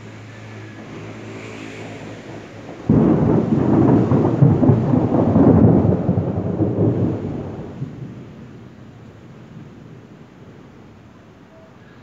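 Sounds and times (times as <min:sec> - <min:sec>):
thunder clap and rumble: 0:01.9 - 0:11.1.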